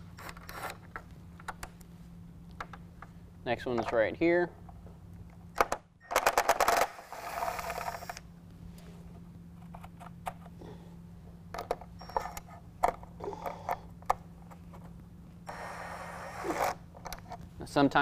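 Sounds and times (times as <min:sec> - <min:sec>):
cordless drill whirring: 0:06.7 - 0:08.2, 0:15.5 - 0:16.8.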